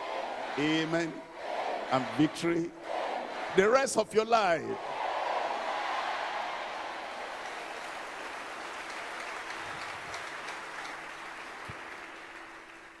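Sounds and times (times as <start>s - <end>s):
crowd clapping and cheering: 0.0s - 3.4s, 4.8s - 13.0s.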